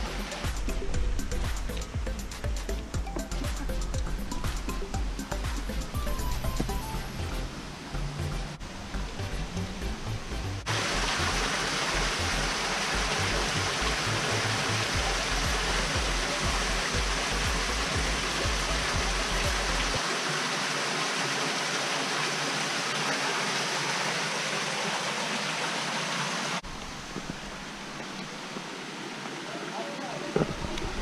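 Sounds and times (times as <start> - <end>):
water splashing into pool: 10.7 - 29.5.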